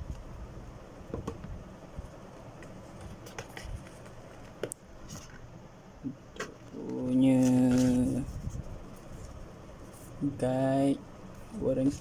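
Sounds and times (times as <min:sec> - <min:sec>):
handling packaging clicks and taps: 0:02.6 - 0:05.4.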